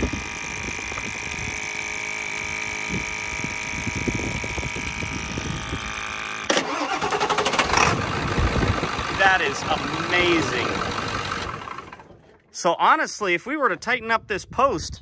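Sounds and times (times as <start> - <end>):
mechanical hum with high whine: 0.0 - 6.5
diesel engine cranking: 0.0 - 12.6.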